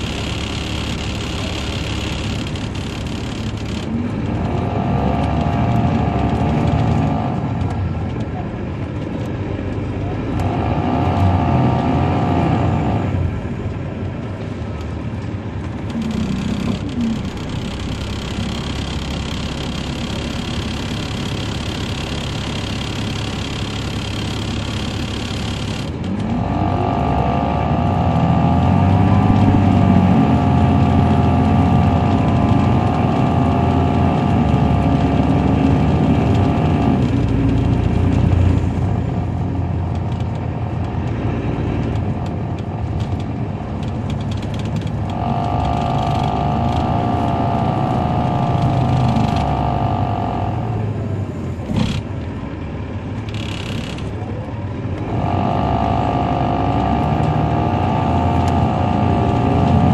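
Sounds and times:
diesel engine drone: 0:00.0 - 0:59.9
wavering whine: 0:27.3 - 0:35.1
sharp click: 0:53.3 - 0:54.2.

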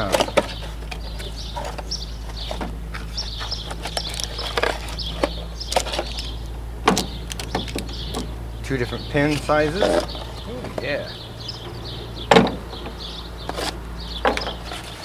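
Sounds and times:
cardboard rustling and scraping: 0:00.0 - 0:06.3, 0:13.4 - 0:15.0
parts clicking and knocking: 0:00.0 - 0:08.4, 0:11.6 - 0:15.0
low hum: 0:00.0 - 0:15.0.

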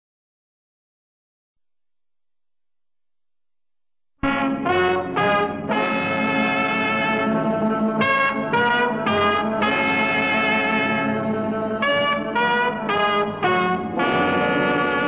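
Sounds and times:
brass fanfare music: 0:04.2 - 0:15.0.

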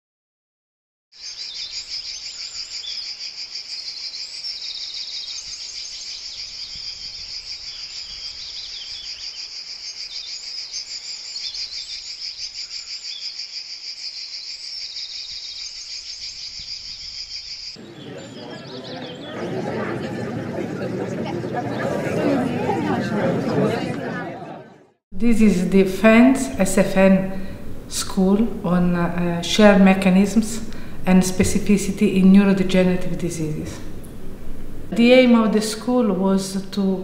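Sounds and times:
insects shrilling: 0:01.2 - 0:17.8
bird chirps: 0:01.2 - 0:19.6.

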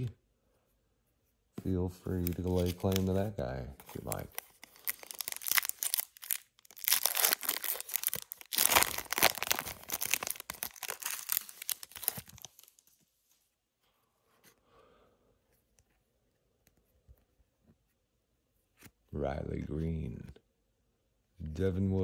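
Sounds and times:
faint handling sounds: 0:00.3 - 0:20.4
wrapper tearing and crinkling: 0:02.1 - 0:03.2, 0:03.9 - 0:12.8.

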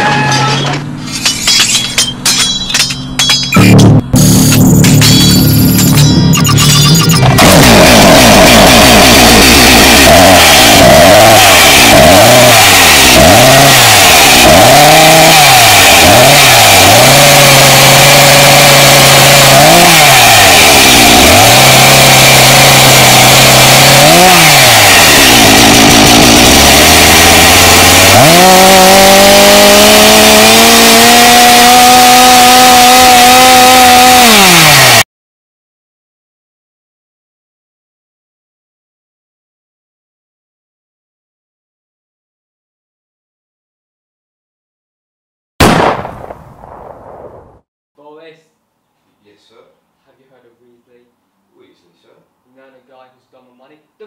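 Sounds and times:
small petrol engine revving: 0:07.2 - 0:35.1.

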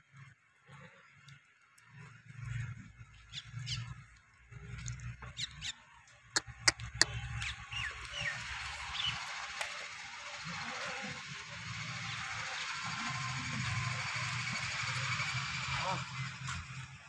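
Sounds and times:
small birds chirping: 0:02.5 - 0:15.4.

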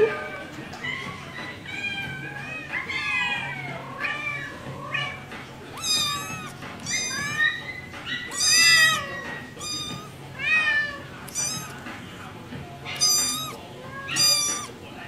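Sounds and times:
kitten meowing: 0:05.8 - 0:11.8, 0:12.9 - 0:14.7.

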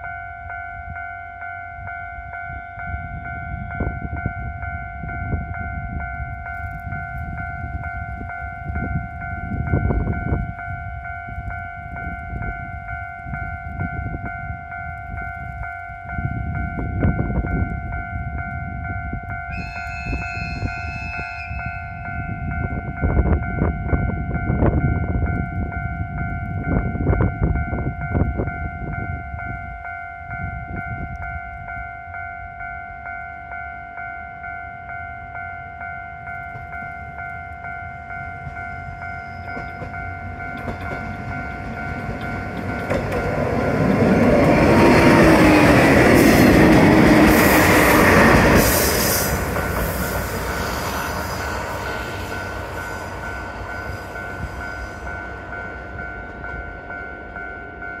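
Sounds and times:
diesel railcar passing: 0:00.0 - 0:58.0
level-crossing alarm dinging: 0:00.0 - 0:58.0
train wheels clattering: 0:39.2 - 0:56.8.

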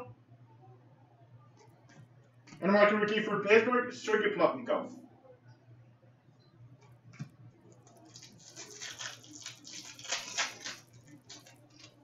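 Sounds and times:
foil wrapper tearing and crinkling: 0:07.8 - 0:12.0.

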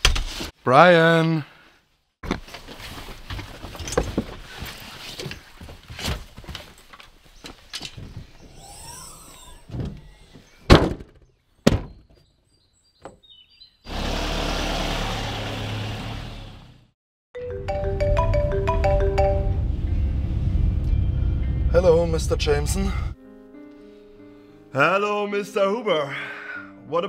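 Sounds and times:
van door shutting: 0:09.2 - 0:12.0
vehicle driving past: 0:19.6 - 0:23.2.

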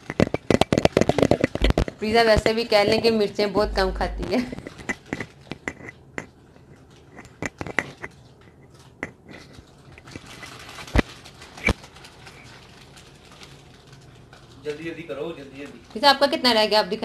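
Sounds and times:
crunching and chewing snacks: 0:04.6 - 0:15.9
plastic snack packet rustling: 0:06.7 - 0:16.4.

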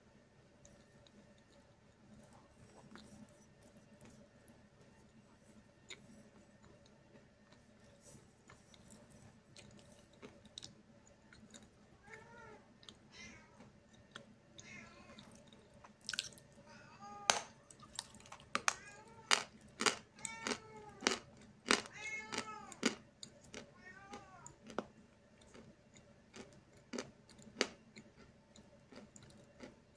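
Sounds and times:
chalk crunching while chewed: 0:05.9 - 0:11.7, 0:15.2 - 0:16.4, 0:19.3 - 0:29.9.

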